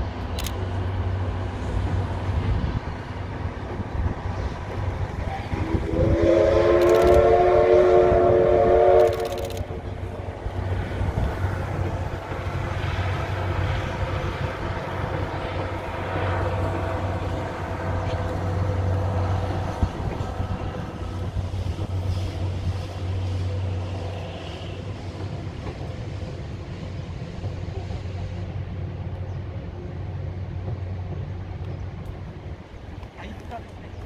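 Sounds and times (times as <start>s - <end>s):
train rumbling over bridge: 0.0s - 34.0s.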